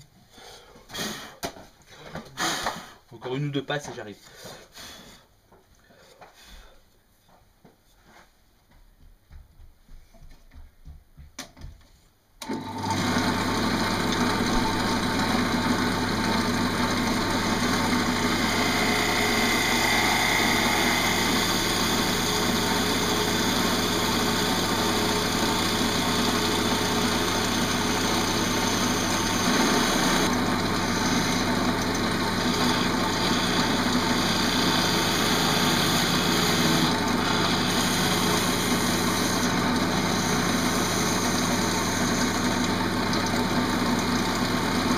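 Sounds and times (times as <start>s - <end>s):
wood lathe running: 12.4s - 44.9s
gouge cutting wood shavings: 17.2s - 42.7s.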